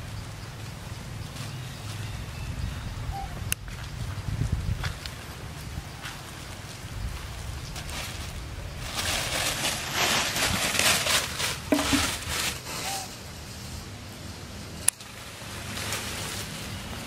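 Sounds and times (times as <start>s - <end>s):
monkey scrambling through leaves: 0.5s - 2.6s, 3.7s - 13.8s, 15.0s - 17.0s
plastic bag rustling and crackling: 7.7s - 13.2s, 15.0s - 17.0s.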